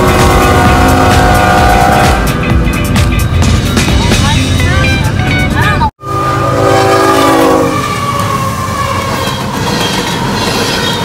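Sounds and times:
locomotive horn chord: 0:00.0 - 0:02.6, 0:04.6 - 0:09.4
hopper cars rumbling and rattling: 0:00.0 - 0:05.9, 0:07.7 - 0:11.0.

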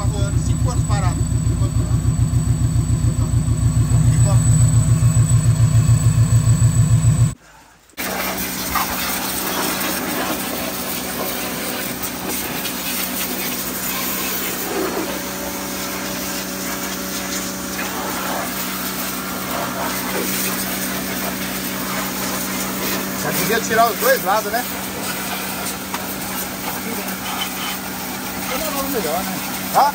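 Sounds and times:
pressure washer humming: 0:00.0 - 0:07.4, 0:08.0 - 0:29.9
water jet hissing: 0:08.0 - 0:29.9.

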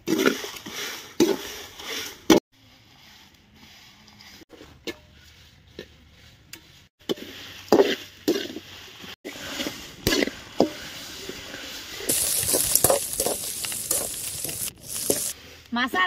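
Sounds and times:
ladle scraping a pan: 0:07.1 - 0:15.4
sizzling hiss: 0:12.0 - 0:15.4.

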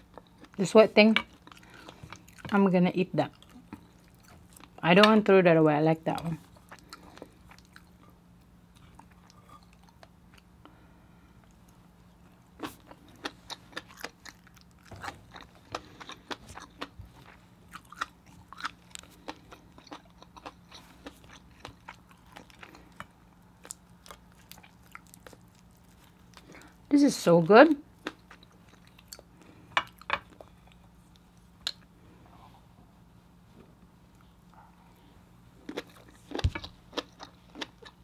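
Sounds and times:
chewing and lip smacking: 0:06.2 - 0:10.5, 0:11.4 - 0:26.8, 0:28.0 - 0:31.9, 0:35.6 - 0:38.0.

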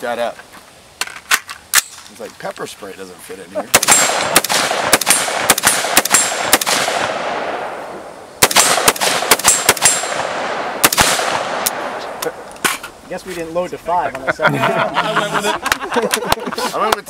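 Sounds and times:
rifle shots with ringing echo: 0:03.7 - 0:12.4.

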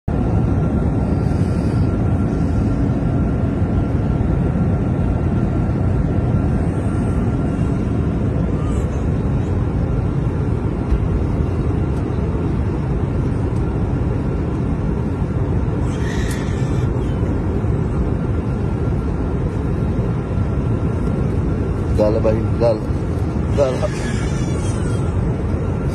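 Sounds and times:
airliner cabin low roar: 0:00.1 - 0:25.9.

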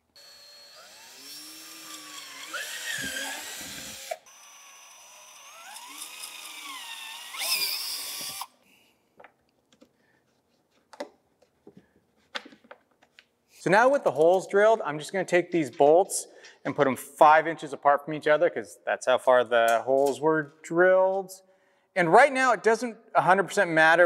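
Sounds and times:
cordless drill boring plastic: 0:00.2 - 0:08.6.

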